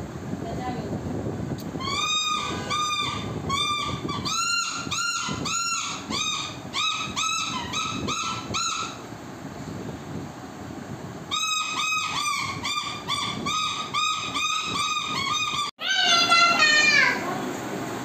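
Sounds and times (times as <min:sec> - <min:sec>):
toy whistles tooting: 0:01.8 - 0:08.9.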